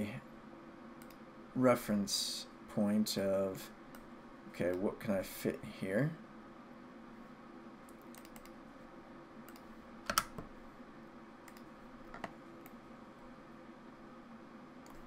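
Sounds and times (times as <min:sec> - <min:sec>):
faint steady hum: 0:00.0 - 0:15.0
mouse clicks: 0:07.9 - 0:08.6, 0:09.5 - 0:10.5, 0:11.5 - 0:12.8
keyboard keystrokes: 0:09.5 - 0:10.4.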